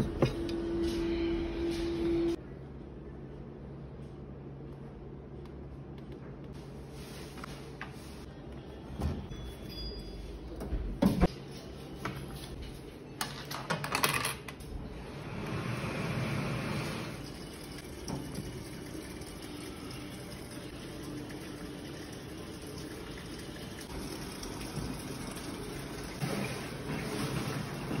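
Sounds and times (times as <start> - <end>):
dryer whooshing: 14.9 - 17.4.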